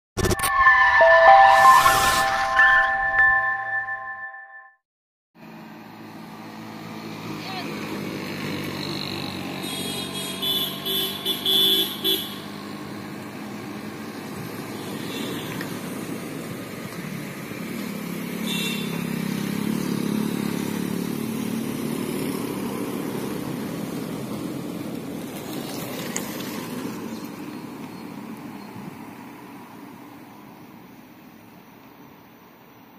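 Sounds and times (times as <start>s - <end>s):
auto-rickshaw engine running: 5.4s - 30.0s
motorcycle passing: 5.8s - 28.2s
vehicle horn tooting: 9.6s - 12.4s, 14.8s - 15.6s, 18.4s - 19.1s.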